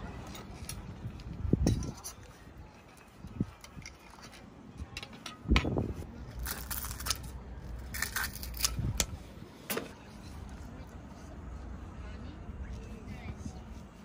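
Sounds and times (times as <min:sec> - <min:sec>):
cookware and utensils clinking: 0:03.5 - 0:05.8.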